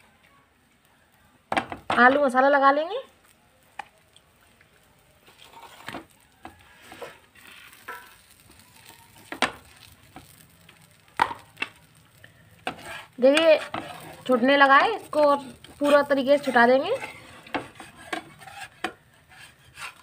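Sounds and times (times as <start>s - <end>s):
faint sizzle: 0.0s - 20.0s
spoon scraping and tapping on pan: 5.3s - 11.9s, 12.6s - 20.0s.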